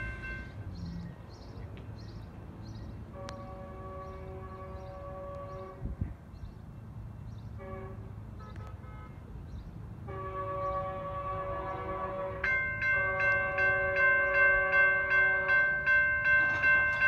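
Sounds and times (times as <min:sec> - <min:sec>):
train horn blasts: 0:03.1 - 0:06.1, 0:07.6 - 0:09.2, 0:10.0 - 0:16.6.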